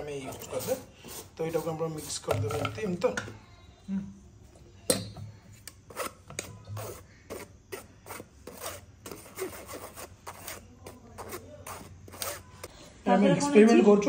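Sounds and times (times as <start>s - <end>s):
spoon scraping metal mesh strainer: 0.0s - 3.0s, 5.9s - 12.7s.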